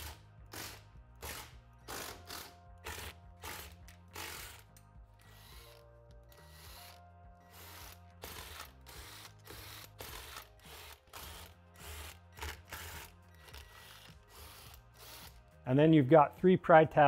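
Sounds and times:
ratchet wrench clicking: 0.0s - 15.4s
soft background music: 0.0s - 17.0s.

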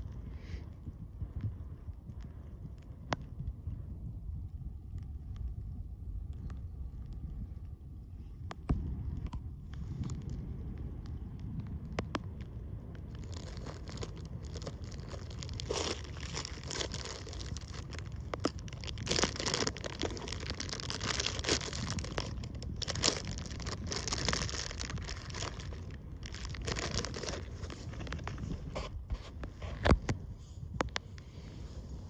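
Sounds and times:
low wind rumble: 0.0s - 32.0s
crinkling rustle: 9.2s - 31.6s.

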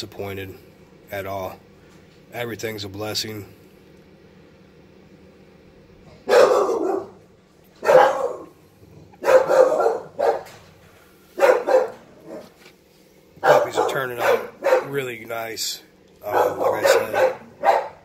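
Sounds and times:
dog barking: 6.2s - 7.2s, 7.8s - 8.5s, 9.2s - 10.6s, 11.4s - 12.6s, 13.4s - 15.0s, 16.2s - 18.0s.

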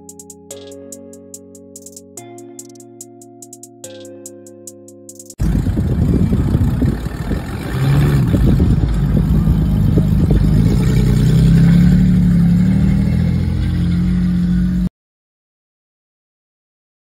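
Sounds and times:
truck engine revving hard: 5.4s - 14.9s.

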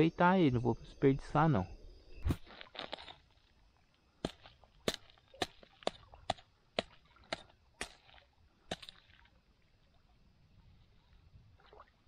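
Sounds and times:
sharp knocks on dry ground: 2.2s - 3.2s, 4.2s - 9.2s.

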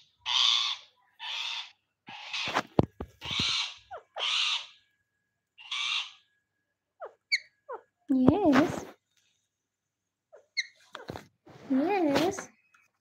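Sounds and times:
parakeet squawking: 0.2s - 2.6s, 3.2s - 4.8s, 5.6s - 6.3s, 7.0s - 8.0s, 10.3s - 11.1s.

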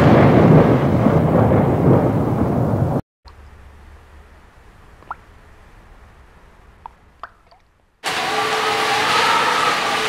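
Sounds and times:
faint low rumble: 1.4s - 8.0s
water drops plopping: 4.8s - 5.5s, 6.6s - 7.8s.

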